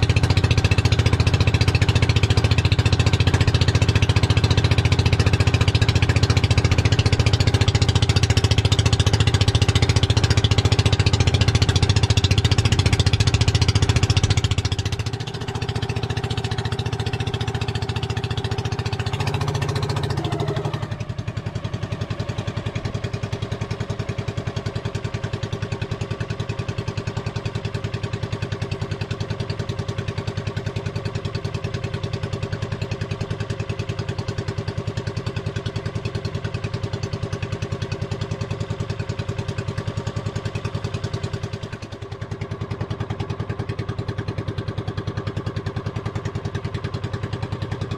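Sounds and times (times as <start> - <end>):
boat engine running: 0.0 - 47.9.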